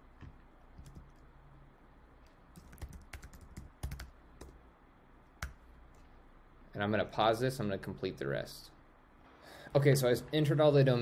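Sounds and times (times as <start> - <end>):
keyboard typing: 0.2 - 1.2, 2.5 - 4.6.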